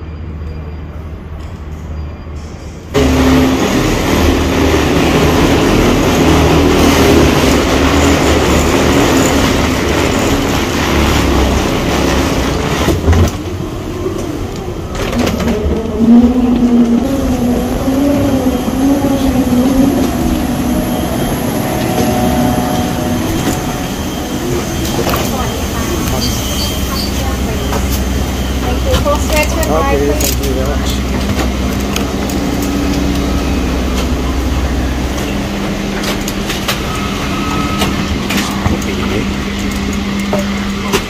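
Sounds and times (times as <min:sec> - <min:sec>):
machinery rushing drone: 0:03.0 - 0:41.0
low hum: 0:14.9 - 0:26.4.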